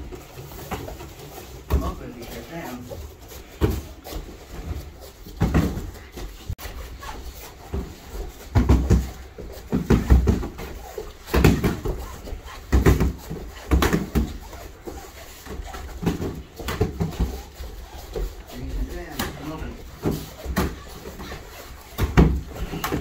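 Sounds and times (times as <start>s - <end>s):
kicks thudding on pads: 5.3s - 6.4s, 7.7s - 14.5s.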